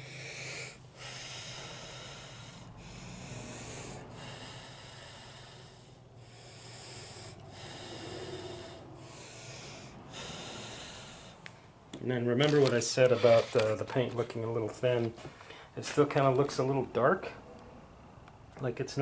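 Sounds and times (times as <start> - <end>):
person blowing puffs of air: 0.0 - 11.8.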